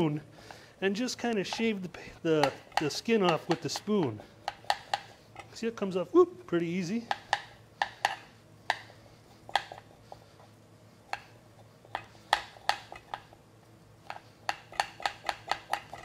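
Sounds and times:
spoon scraping ginger skin: 0:00.5 - 0:05.6
spoon clicking on plastic board: 0:02.4 - 0:05.1, 0:14.0 - 0:16.0.

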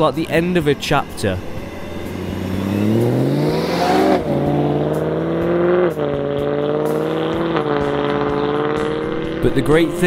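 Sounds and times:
car engine accelerating and upshifting: 0:00.0 - 0:10.0.

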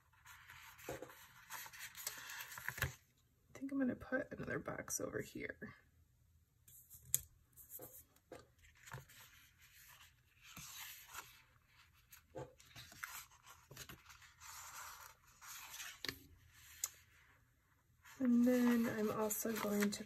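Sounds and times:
paper rustling: 0:18.0 - 0:20.0.

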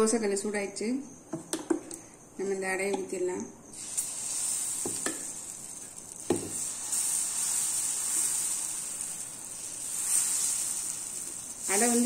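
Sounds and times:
batter sizzling on griddle: 0:03.7 - 0:12.0.

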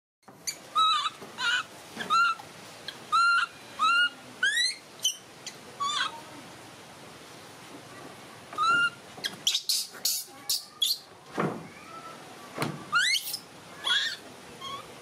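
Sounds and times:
baby monkey cooing: 0:00.4 - 0:06.3, 0:08.6 - 0:11.1, 0:12.9 - 0:15.0.

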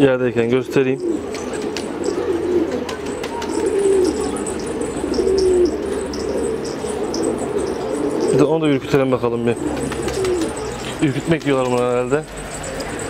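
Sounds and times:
pigeons cooing: 0:00.0 - 0:13.0.

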